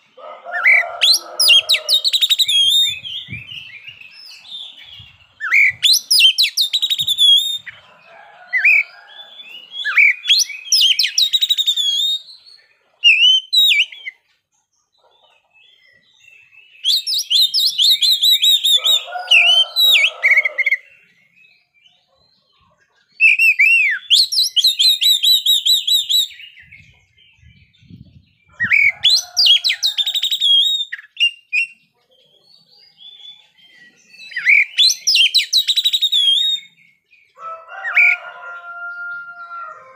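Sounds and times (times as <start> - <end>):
bird singing whistled trills: 1.0 - 7.8, 8.7 - 14.2, 16.2 - 19.0, 23.2 - 28.0, 28.6 - 31.9, 32.6 - 37.0.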